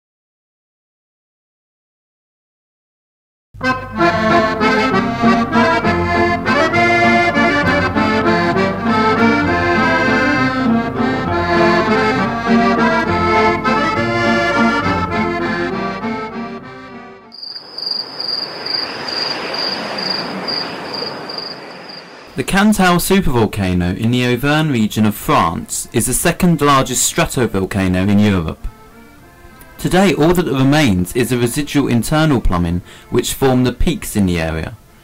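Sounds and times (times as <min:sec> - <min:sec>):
instrumental title music: 0:03.6 - 0:17.3
high insect chirping: 0:17.3 - 0:22.4
soft outdoor hiss: 0:17.3 - 0:35.0.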